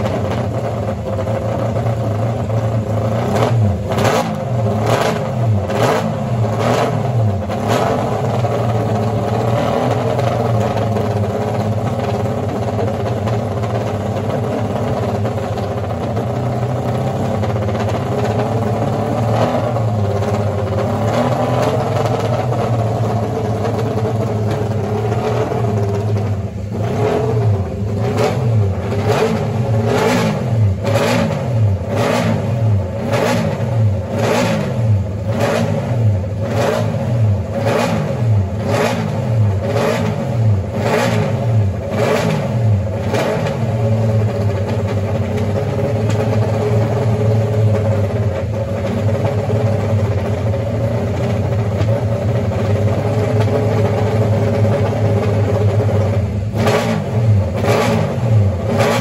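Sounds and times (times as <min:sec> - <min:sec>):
motorcycle engine idling: 0:00.0 - 0:03.9, 0:07.2 - 0:29.9, 0:43.7 - 0:56.6
engine throttle blips: 0:00.0 - 0:59.0.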